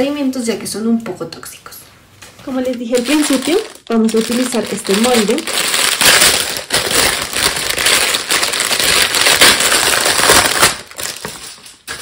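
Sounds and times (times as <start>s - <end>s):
plastic bag crinkling: 2.4s - 12.0s.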